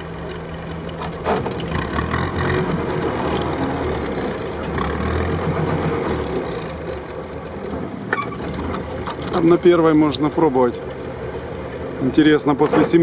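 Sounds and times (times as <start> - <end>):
jeep engine running: 0.0 - 13.0
knocks and rattles from bumps: 3.0 - 9.6.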